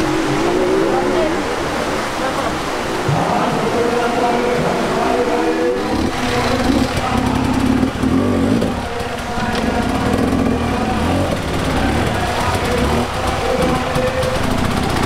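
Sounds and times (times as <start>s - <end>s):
dirt bike engine revving: 5.0s - 15.0s.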